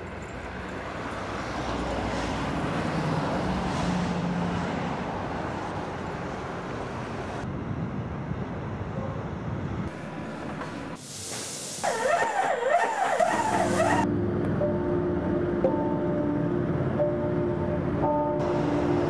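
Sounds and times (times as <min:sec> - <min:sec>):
distant traffic rumble: 0:00.0 - 0:11.0, 0:11.8 - 0:19.0
high hiss: 0:11.0 - 0:12.1.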